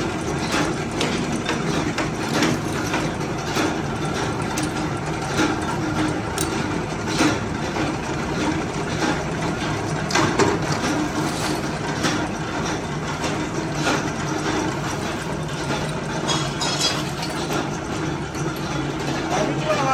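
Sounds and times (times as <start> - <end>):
workshop machinery humming: 0.0 - 19.9
steel pieces clanking together: 0.4 - 6.7, 10.1 - 12.3, 13.8 - 19.4.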